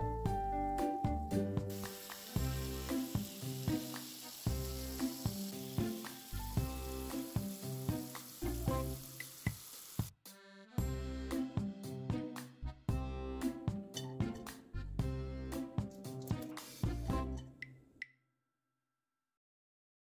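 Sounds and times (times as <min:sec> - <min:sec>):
background music with beat: 0:00.0 - 0:17.8
faucet water pouring into bowl: 0:01.7 - 0:10.1.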